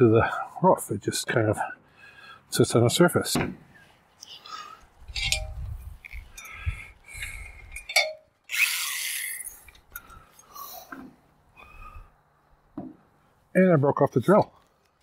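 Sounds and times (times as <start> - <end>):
metallic clinks: 5.1 - 6.6, 7.2 - 8.3.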